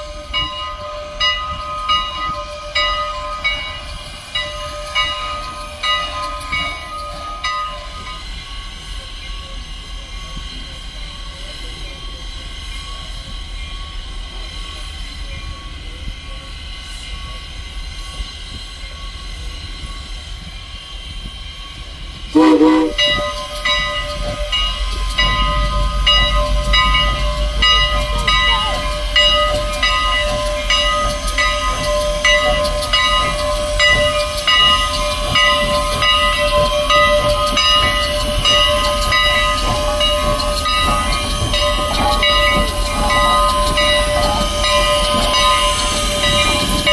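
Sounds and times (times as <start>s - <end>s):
train low rumble: 0.0s - 46.9s
steam locomotive whistle: 22.4s - 23.4s.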